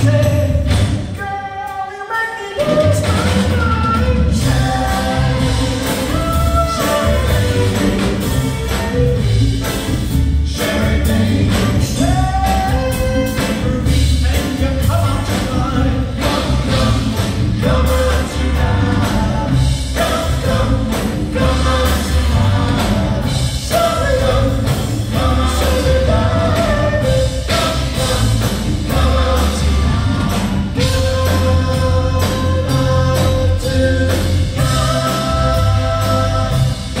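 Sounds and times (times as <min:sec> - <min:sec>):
electric bass: 0:00.0 - 0:01.2, 0:02.6 - 0:37.0
drums: 0:00.0 - 0:37.0
keyboards: 0:02.6 - 0:37.0.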